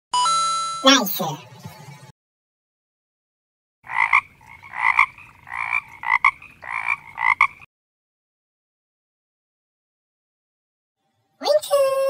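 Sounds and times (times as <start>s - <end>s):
frog croaking: 3.8s - 7.7s.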